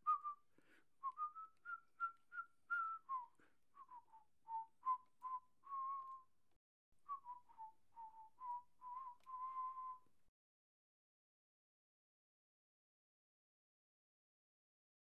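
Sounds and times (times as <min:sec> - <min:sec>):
person whistling a slow tune: 0:00.0 - 0:06.3, 0:07.1 - 0:10.1.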